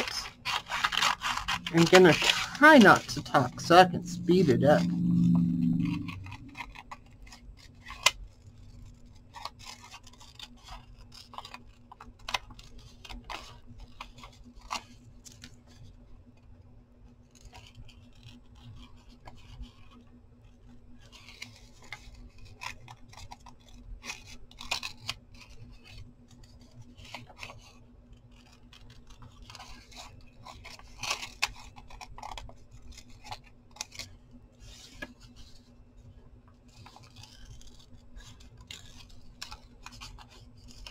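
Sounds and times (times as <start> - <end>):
scissors snipping paper: 0.0 - 3.8, 9.0 - 15.4, 21.1 - 34.1, 36.7 - 40.9
faint steady hum: 0.0 - 40.9.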